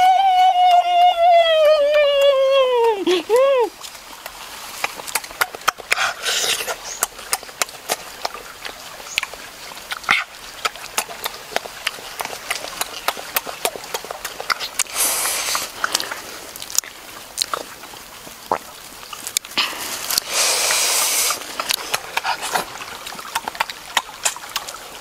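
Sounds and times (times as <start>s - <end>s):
wet chewing and lip-smacking: 0.1s - 25.0s
breathy exhales: 19.6s - 21.4s.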